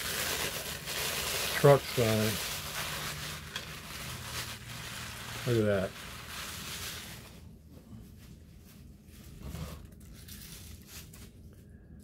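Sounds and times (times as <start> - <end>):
plastic package crinkling and tearing: 0.0 - 7.4, 9.8 - 11.5.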